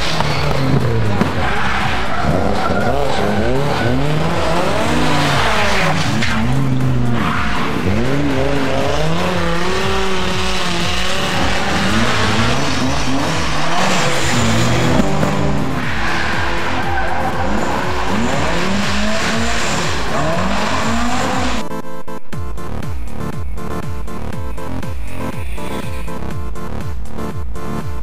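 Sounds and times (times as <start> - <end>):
tyres scrubbing on tarmac: 0.0 - 21.6
rally car engine revving: 0.0 - 28.0.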